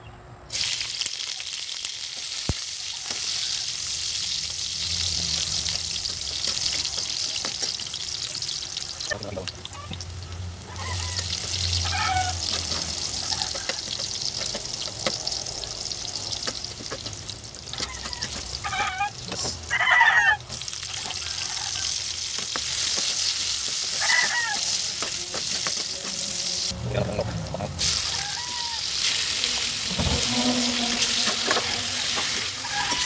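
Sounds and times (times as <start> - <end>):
ginger sizzling in oil: 0.5 - 26.8, 27.8 - 33.0
spatula scraping wok: 3.0 - 9.0, 10.0 - 19.8, 20.5 - 33.0
high voice-like calls: 9.0 - 13.8, 27.8 - 33.0.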